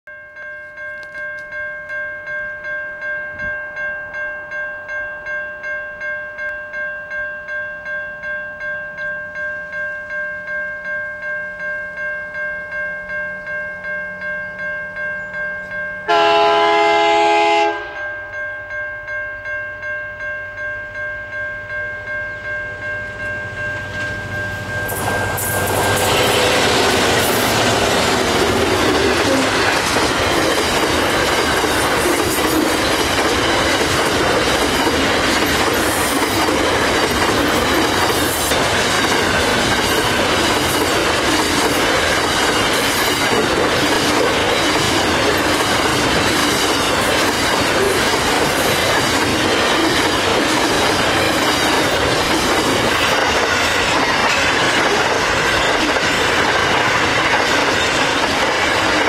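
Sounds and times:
level crossing bell ringing: 0:00.1 - 0:52.3
locomotive horn: 0:16.1 - 0:18.1
freight train rushing past: 0:16.1 - 0:18.4, 0:22.4 - 0:59.0.

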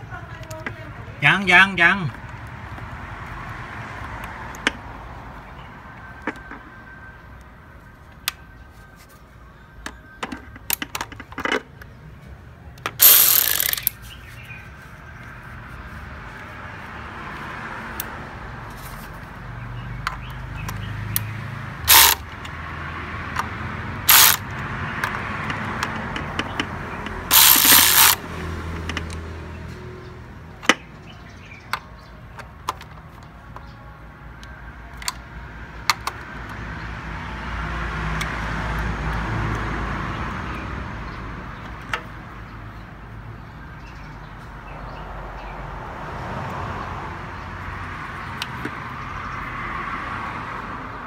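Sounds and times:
loud ratcheting bursts: 0:13.0 - 0:14.0, 0:21.9 - 0:22.2, 0:24.1 - 0:24.5, 0:27.3 - 0:28.2
ratchet wrench clicks: 0:13.0 - 0:14.0, 0:21.9 - 0:22.5, 0:24.1 - 0:25.2, 0:27.3 - 0:28.2.

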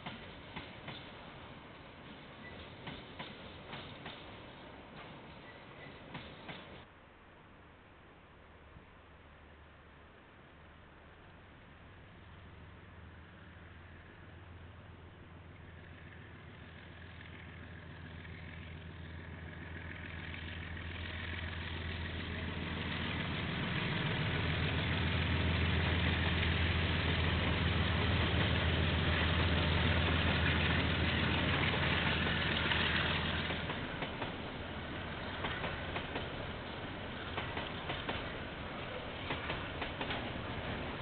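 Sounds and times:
diesel locomotive engine hum: 0:00.0 - 0:06.9, 0:08.4 - 0:41.0
wheels clicking on track: 0:01.9 - 0:06.9, 0:15.3 - 0:41.0.

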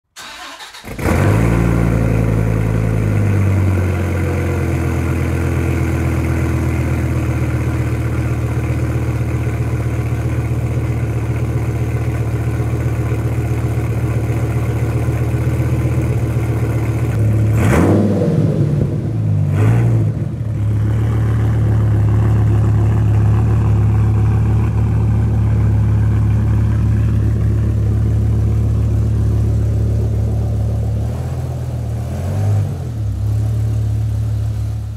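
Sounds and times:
car engine starting and idling: 0:00.1 - 0:34.9
engine revving bursts: 0:00.2 - 0:02.6, 0:17.1 - 0:20.4, 0:30.9 - 0:33.5.

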